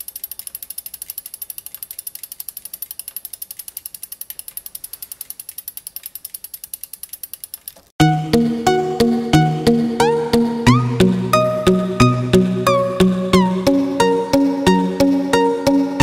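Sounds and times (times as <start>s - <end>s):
bicycle freehub ticking: 0.0s - 7.9s.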